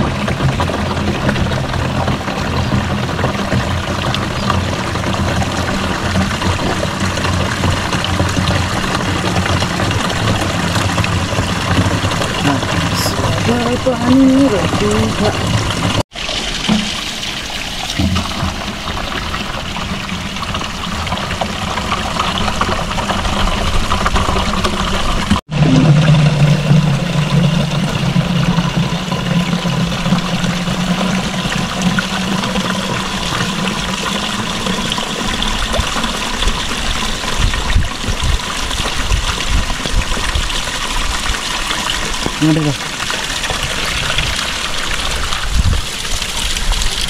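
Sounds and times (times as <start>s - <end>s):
water trickling into plastic can: 0.0s - 25.7s.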